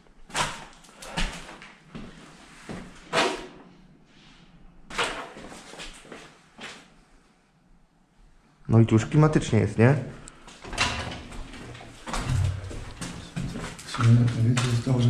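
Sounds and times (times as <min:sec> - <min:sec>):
scraping and knocking noises: 0:10.6 - 0:15.0.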